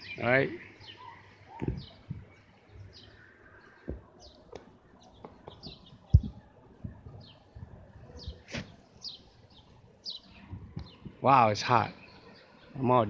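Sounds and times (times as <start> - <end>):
birds chirping: 0.0 - 13.0
dull thumps: 3.8 - 7.2.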